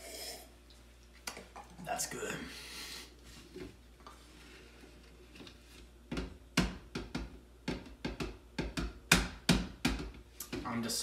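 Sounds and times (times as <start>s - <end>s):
cartons and bottles knocking on counter: 6.1s - 10.2s.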